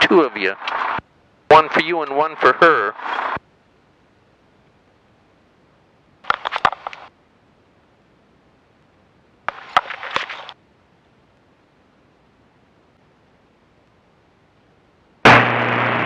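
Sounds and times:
rustling and clicking handling noise: 0:06.2 - 0:07.1, 0:09.5 - 0:10.6.

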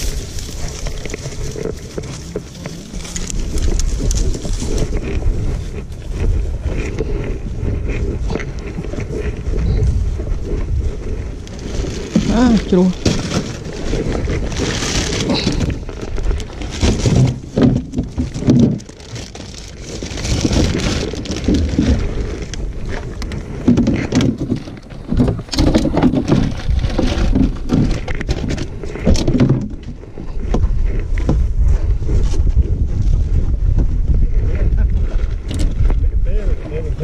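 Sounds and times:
bottles and bags being handled: 0:00.0 - 0:31.5
wind buffeting microphone: 0:00.0 - 0:37.0
person speaking: 0:02.2 - 0:03.5, 0:12.2 - 0:13.1.

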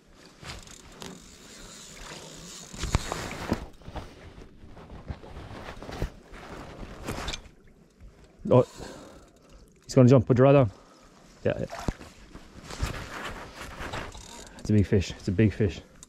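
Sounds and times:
fishing reel running: 0:00.7 - 0:03.1, 0:08.6 - 0:09.5, 0:14.1 - 0:14.7.

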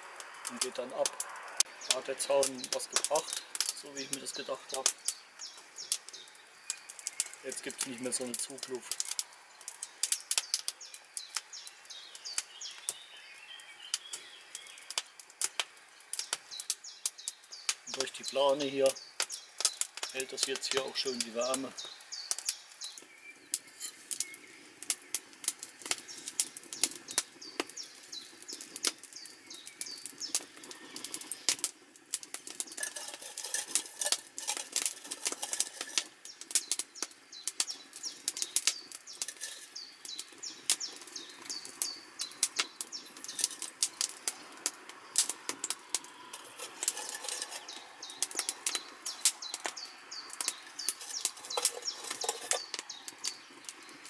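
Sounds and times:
birds chirping: 0:00.0 - 0:54.0
campfire crackling and popping: 0:00.0 - 0:54.0.

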